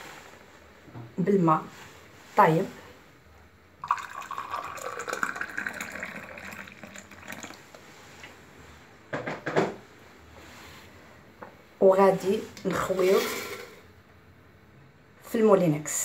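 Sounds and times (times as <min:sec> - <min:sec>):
water pouring into glass: 0:03.8 - 0:07.8.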